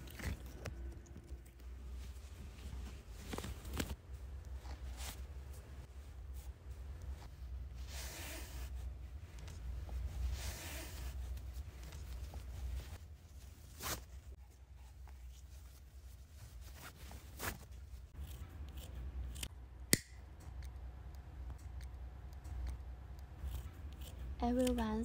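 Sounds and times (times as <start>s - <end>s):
ribbons rustling: 0.0s - 14.4s
lighter being struck: 19.9s - 20.2s.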